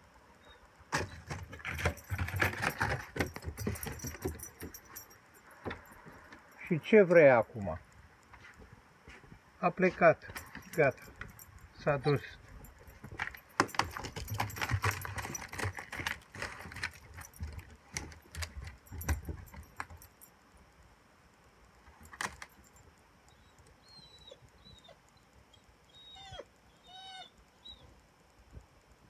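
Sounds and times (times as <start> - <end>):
crunching and clicking: 10.2 - 20.2.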